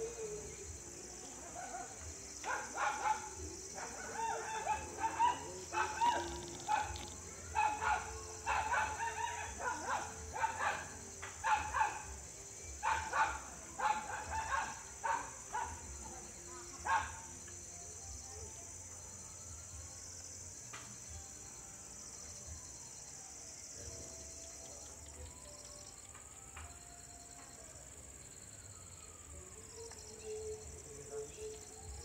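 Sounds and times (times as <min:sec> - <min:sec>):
dog barking: 0:01.6 - 0:12.1, 0:12.8 - 0:15.8, 0:16.8 - 0:17.2.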